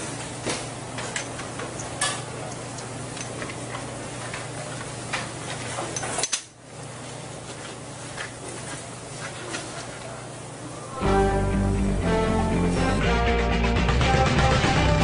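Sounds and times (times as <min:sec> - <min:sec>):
steady low hum: 0:06.6 - 0:13.8.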